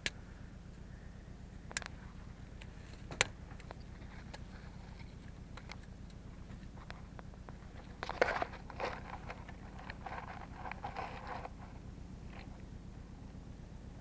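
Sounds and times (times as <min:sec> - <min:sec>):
low steady hum: 0:00.0 - 0:14.0
soil crumbling: 0:07.5 - 0:11.7.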